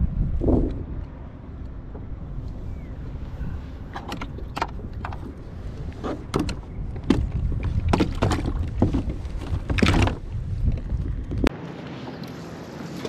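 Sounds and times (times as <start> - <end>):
wind rumble on microphone: 0.0 - 11.5
kayak pedal drive clicks and clunks: 3.8 - 11.5.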